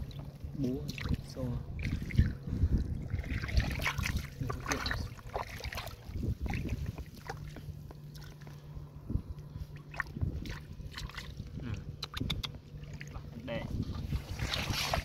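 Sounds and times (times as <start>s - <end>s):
hands splashing in muddy water: 3.0s - 8.6s, 9.8s - 11.4s, 14.1s - 15.0s.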